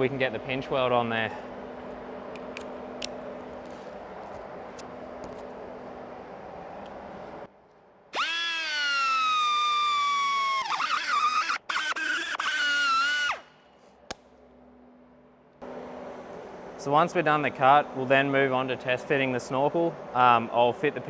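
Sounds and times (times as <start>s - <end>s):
air grinder high whine: 8.1s - 13.6s.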